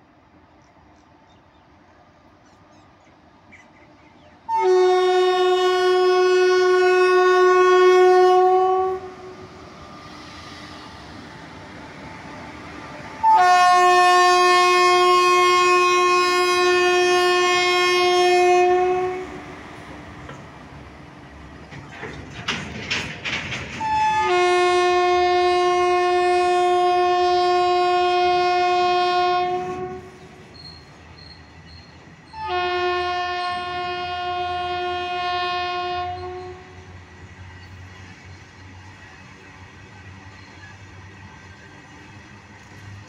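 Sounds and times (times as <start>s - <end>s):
locomotive horn blasts: 4.5s - 9.5s, 13.2s - 19.5s, 23.8s - 30.2s, 32.3s - 36.8s
train wagons clattering over rail joints: 20.0s - 24.8s.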